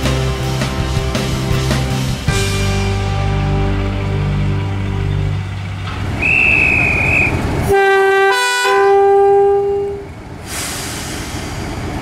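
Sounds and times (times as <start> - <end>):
diesel engine running: 0.0 - 7.7
two-tone locomotive horn: 6.2 - 10.2.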